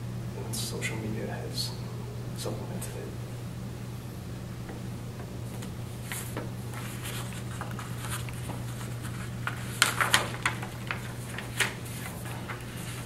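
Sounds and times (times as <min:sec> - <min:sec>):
steady low hum: 0:00.0 - 0:13.0
paper rustling and crackling: 0:05.5 - 0:13.0.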